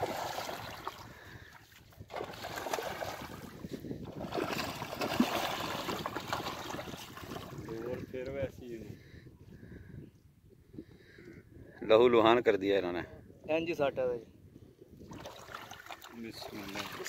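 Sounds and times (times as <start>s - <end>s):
fish splashing in water: 0.0s - 1.5s, 2.1s - 7.7s, 15.1s - 17.0s.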